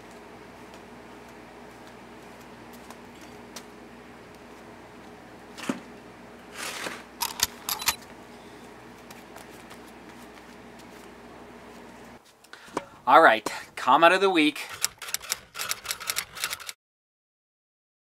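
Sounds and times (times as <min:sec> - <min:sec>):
low hum: 0:00.0 - 0:13.1
rubber sandals scuffing and clicking: 0:08.6 - 0:12.5.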